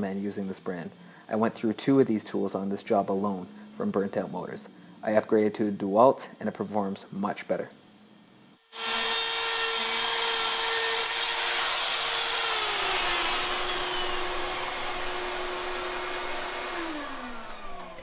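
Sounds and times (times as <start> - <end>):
spiral saw cutting drywall: 8.5 - 18.0.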